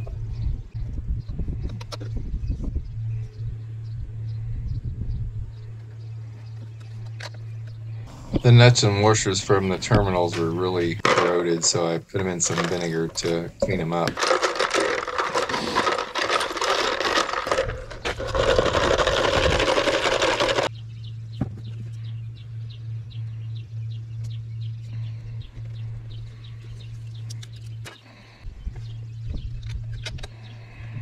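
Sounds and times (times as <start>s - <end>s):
steady low hum: 0.0s - 31.0s
metal parts rattling in liquid: 11.0s - 11.8s, 12.4s - 20.7s.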